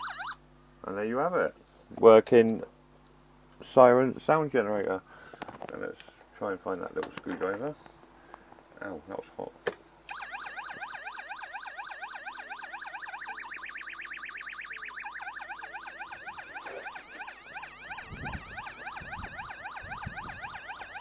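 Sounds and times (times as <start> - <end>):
electronic siren wail: 0.0 - 0.4, 10.1 - 21.0.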